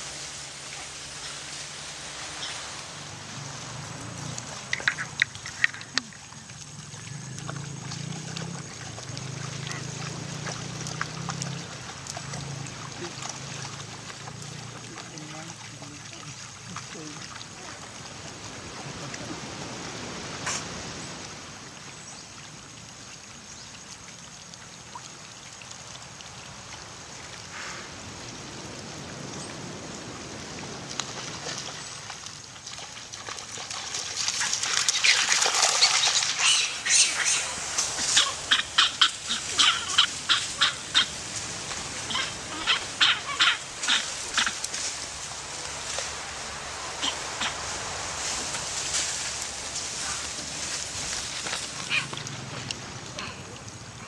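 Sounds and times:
rapid short animal calls: 35.0s - 41.1s, 51.8s - 52.2s.

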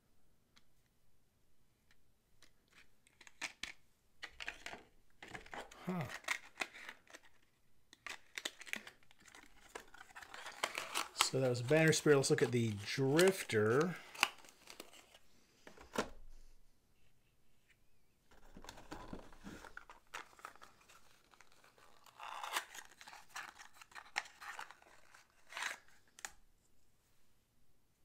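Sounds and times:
packaging crinkling and rustling: 2.7s - 15.2s, 18.3s - 26.4s.

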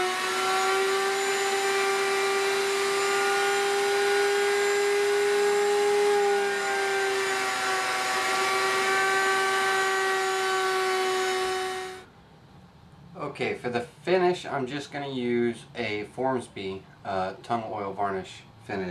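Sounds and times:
router whining through wood: 0.0s - 12.1s.

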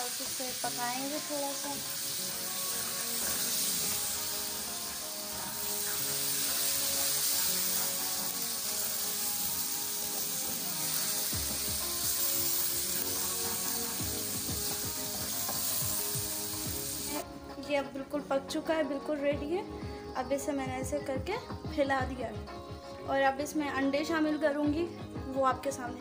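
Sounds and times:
vegetables sizzling in a pan: 0.0s - 17.2s
background music: 0.0s - 26.0s.

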